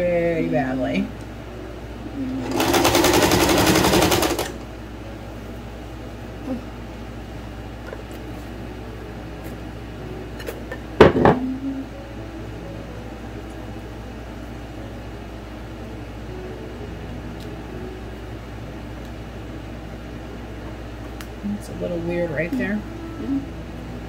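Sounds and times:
background hum: 0:00.0 - 0:24.0.

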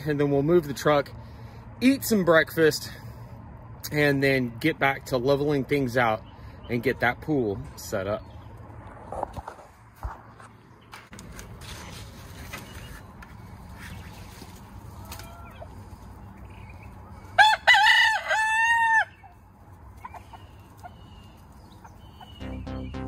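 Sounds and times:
rooster crowing: 0:17.4 - 0:19.3
chickens clucking: 0:18.8 - 0:22.9.

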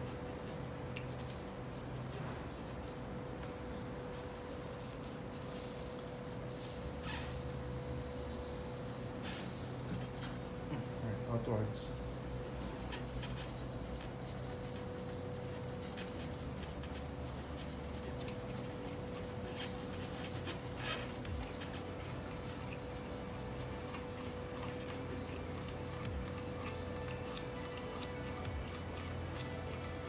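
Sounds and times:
steady low hum: 0:00.0 - 0:30.0
tyre reamer scratching tyre: 0:16.0 - 0:30.0.

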